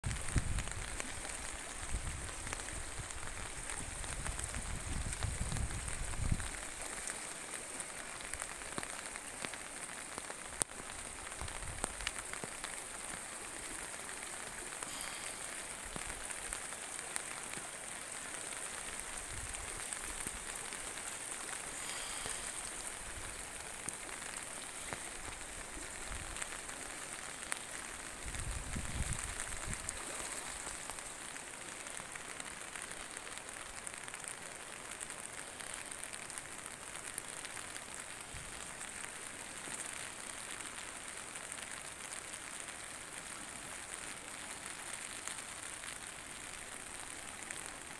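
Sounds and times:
muddy stream rushing under bridge: 0:00.0 - 0:47.9
wind buffeting microphone: 0:03.8 - 0:06.5, 0:28.2 - 0:30.0.

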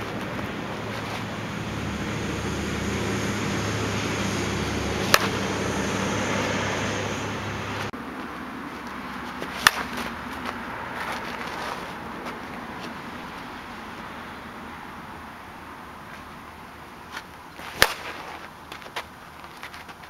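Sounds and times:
bat striking softball: 0:04.9 - 0:05.6, 0:09.4 - 0:11.1, 0:17.6 - 0:18.5.

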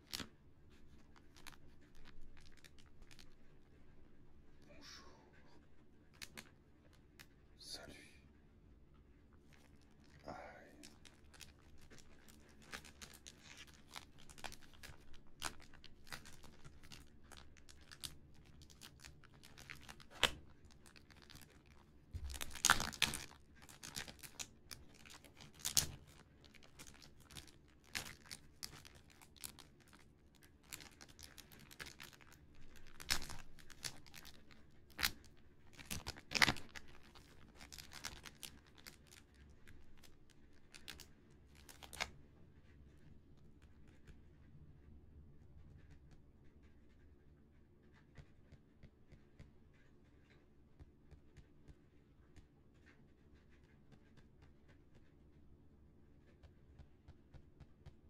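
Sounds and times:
cellophane crinkling: 0:00.0 - 0:03.8, 0:06.1 - 0:07.3, 0:09.4 - 0:42.1
fingers tapping on package: 0:01.0 - 0:03.4, 0:10.8 - 0:42.1.

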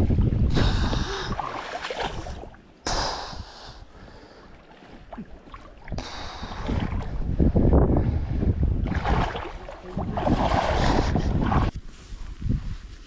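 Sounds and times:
wind buffeting microphone: 0:00.0 - 0:02.5, 0:05.8 - 0:13.0.

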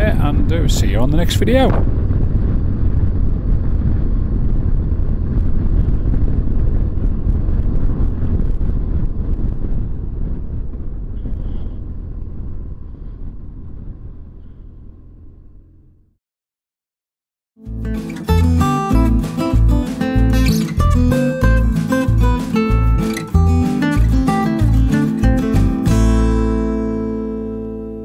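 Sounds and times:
wind rush: 0:00.0 - 0:15.3
motorcycle engine rumble: 0:00.0 - 0:16.2.

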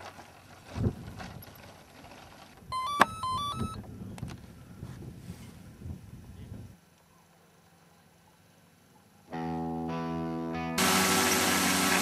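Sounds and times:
electronic beeps: 0:02.7 - 0:03.8.

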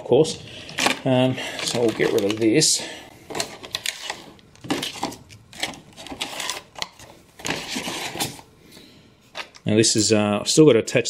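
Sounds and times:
plastic tray crackling: 0:00.8 - 0:08.4.

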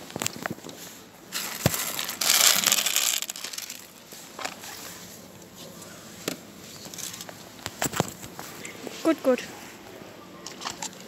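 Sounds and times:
plastic crinkling: 0:01.3 - 0:05.0.

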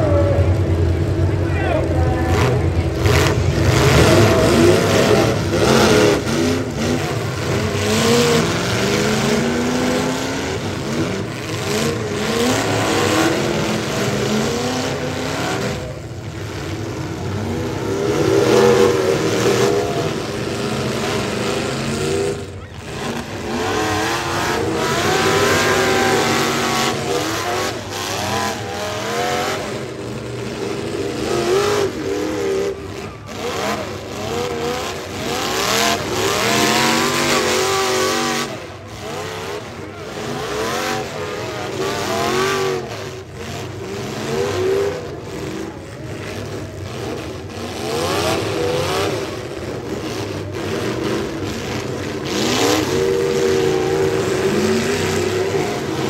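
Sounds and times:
car engines revving: 0:00.0 - 0:56.0.

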